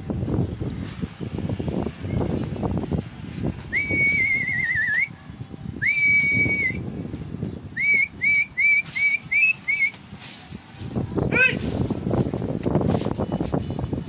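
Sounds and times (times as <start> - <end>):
person whistling: 3.7 - 5.1, 5.8 - 6.9, 7.8 - 10.0.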